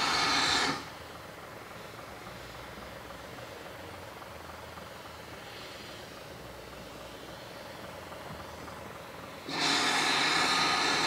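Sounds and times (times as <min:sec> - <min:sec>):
loud steam hiss: 0:00.0 - 0:01.5, 0:08.9 - 0:11.0.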